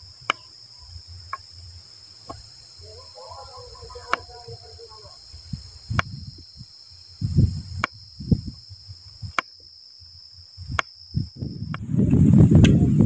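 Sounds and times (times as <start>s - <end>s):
insects buzzing: 0.0s - 13.0s
wind rumbling on microphone: 2.3s - 9.4s, 10.5s - 13.0s.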